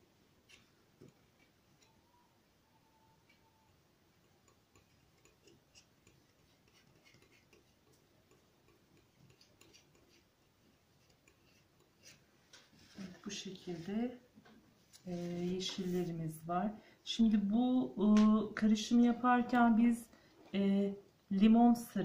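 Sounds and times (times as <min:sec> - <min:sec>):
palette knife ticking and scraping: 0:00.4 - 0:02.0, 0:04.1 - 0:12.2.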